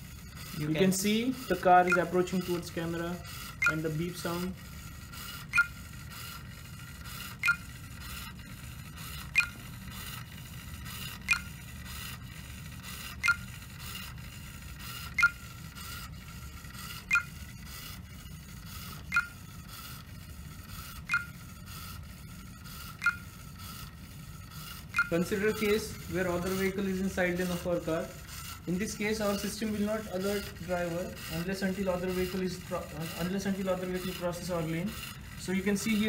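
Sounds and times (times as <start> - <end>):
warning beeps from laptop: 0.1 - 23.8, 24.5 - 36.0.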